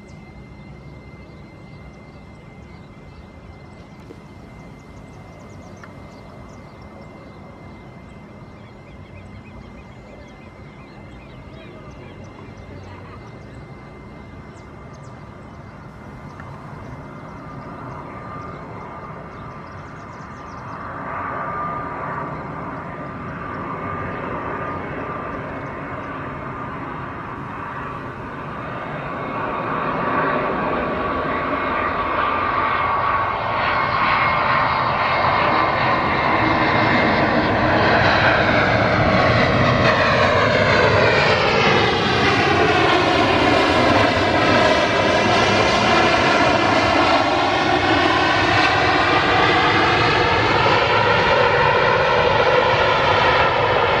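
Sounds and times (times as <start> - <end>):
jet engines whining: 0.0 - 54.0.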